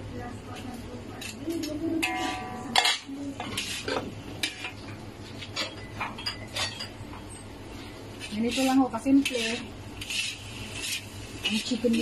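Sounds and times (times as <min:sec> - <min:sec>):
spatula scraping metal wok: 0:08.2 - 0:12.0.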